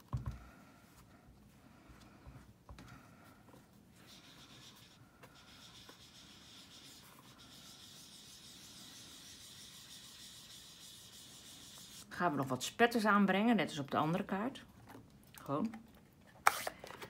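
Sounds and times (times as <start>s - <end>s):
hand rubbing cardstock: 4.0s - 12.1s.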